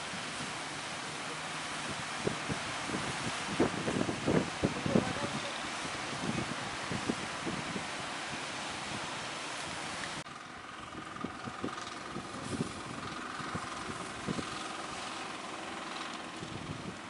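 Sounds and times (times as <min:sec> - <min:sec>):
surf: 0:00.0 - 0:10.2
boat engine running: 0:00.0 - 0:17.0
wind buffeting microphone: 0:01.6 - 0:17.0.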